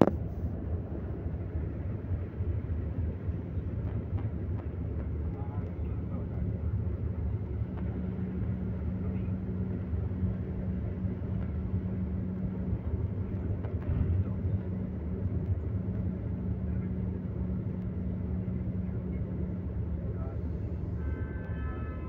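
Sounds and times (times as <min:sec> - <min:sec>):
engine hum: 0:00.0 - 0:22.0
road noise inside moving vehicle: 0:00.0 - 0:22.0.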